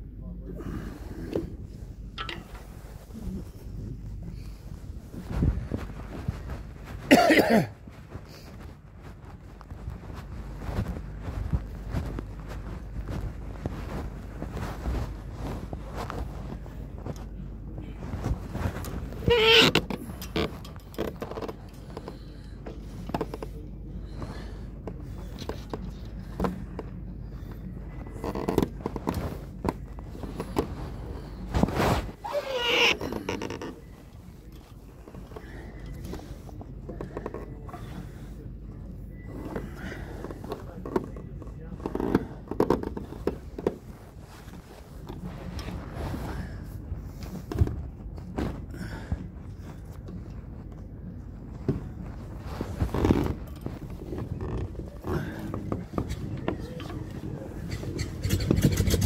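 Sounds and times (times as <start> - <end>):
cloth rubbing over microphone: 0.6 - 59.0
sharp clicks and scrapes: 57.7 - 59.0.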